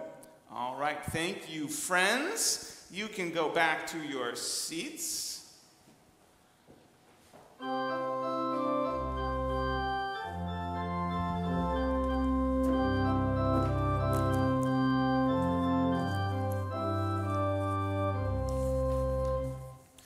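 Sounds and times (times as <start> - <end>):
deep organ bass pedal notes: 7.6 - 19.8
organ playing slow chords: 7.6 - 19.9.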